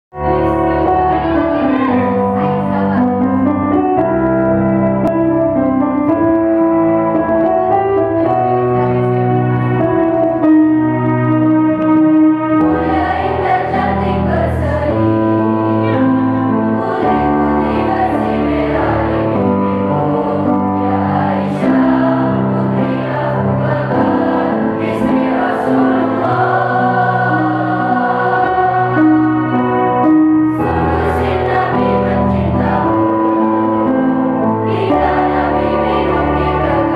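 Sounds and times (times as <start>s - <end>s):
electronic keyboard: 0.1s - 36.9s
mixed choir singing in harmony: 0.2s - 4.5s, 12.5s - 36.9s.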